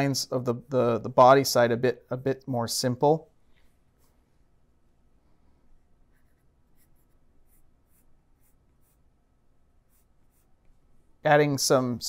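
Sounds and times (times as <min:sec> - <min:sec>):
drawing tool scratching: 0:06.1 - 0:09.2, 0:09.8 - 0:10.7.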